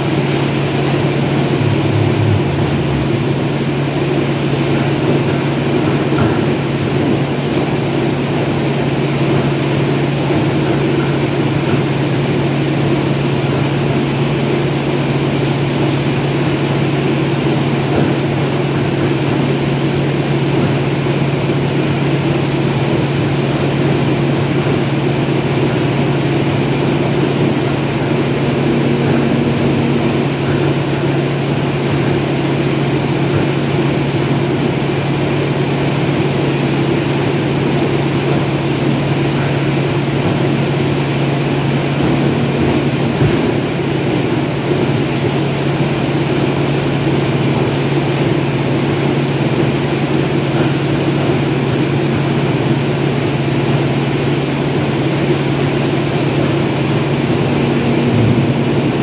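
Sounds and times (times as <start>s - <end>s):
loud machine drone: 0.0s - 59.0s.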